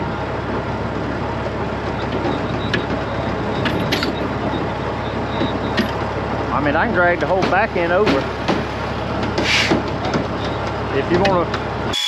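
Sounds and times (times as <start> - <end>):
truck diesel engine idling: 0.0 - 12.0.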